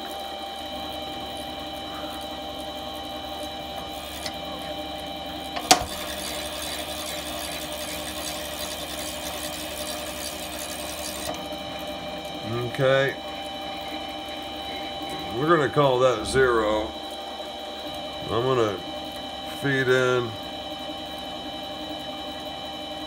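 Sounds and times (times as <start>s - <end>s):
lathe motor whining: 0.0s - 23.0s.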